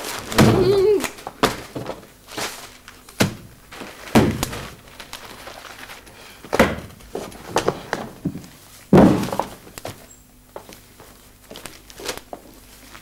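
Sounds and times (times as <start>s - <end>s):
dull knocks and thuds: 4.1s - 4.8s, 6.5s - 9.7s.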